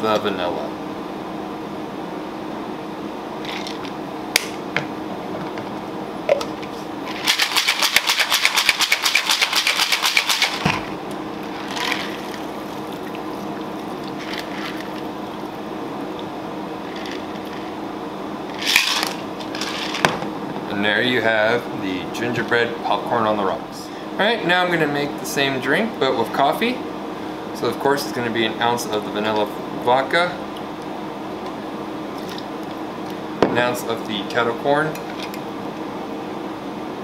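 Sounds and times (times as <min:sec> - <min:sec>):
steady hum: 0:00.0 - 0:37.0
ice rattling in cocktail shaker: 0:07.1 - 0:10.6.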